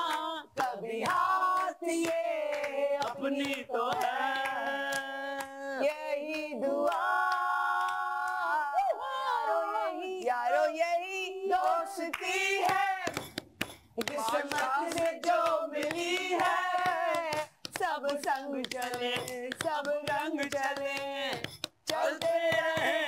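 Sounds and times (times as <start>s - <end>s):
hand claps: 0.0s - 5.6s, 11.6s - 23.0s
group of voices singing: 0.0s - 13.4s, 14.0s - 23.0s.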